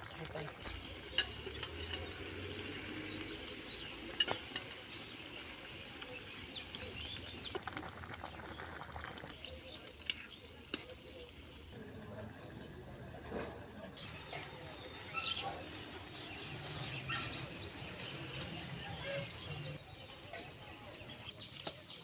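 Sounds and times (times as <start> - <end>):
metal utensils clinking on a pan: 0.7 - 2.8, 4.1 - 5.0.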